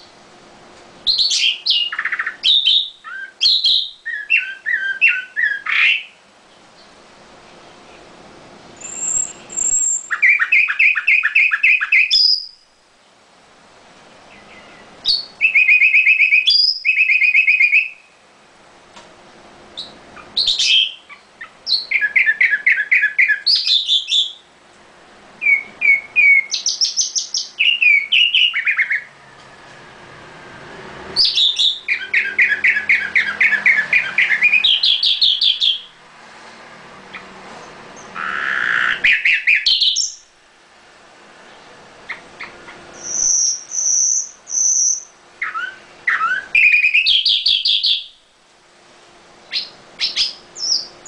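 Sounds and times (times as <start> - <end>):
bird singing whistled notes: 1.0 - 6.2, 8.8 - 12.6, 14.3 - 18.1, 19.8 - 24.4, 25.4 - 29.2, 31.2 - 35.9, 38.0 - 40.3, 42.1 - 48.2, 49.5 - 51.0.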